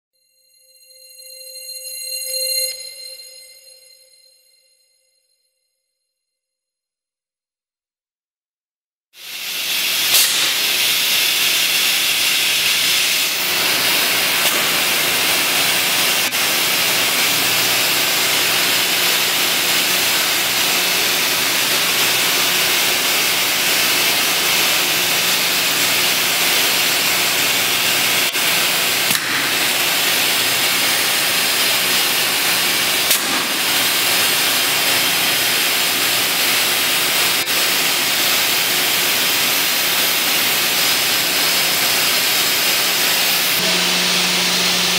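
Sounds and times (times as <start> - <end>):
edgebander machine hissing: 9.2 - 44.9.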